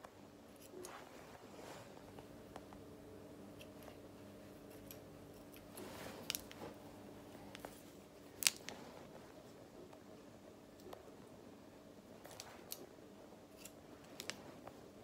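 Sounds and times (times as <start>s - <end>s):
faint steady hum: 0.0s - 15.0s
scissors snipping hair: 4.6s - 6.6s, 13.5s - 14.4s.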